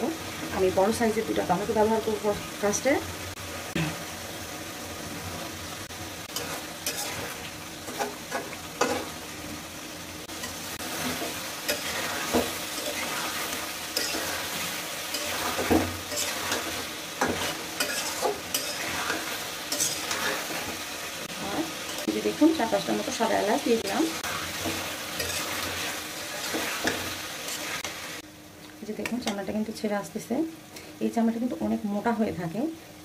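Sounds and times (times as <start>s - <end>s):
food sizzling in hot oil: 0.0s - 33.0s
metal spatula scraping pan: 6.3s - 9.1s, 10.4s - 20.8s, 23.8s - 27.9s.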